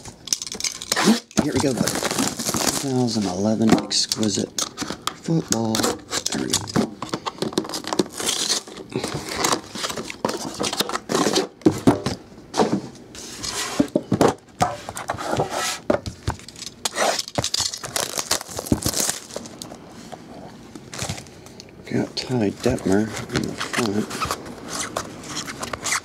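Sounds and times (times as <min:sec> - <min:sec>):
plastic packaging crinkling and tearing: 0:00.3 - 0:06.7, 0:07.6 - 0:11.5, 0:16.5 - 0:19.8, 0:22.5 - 0:26.0.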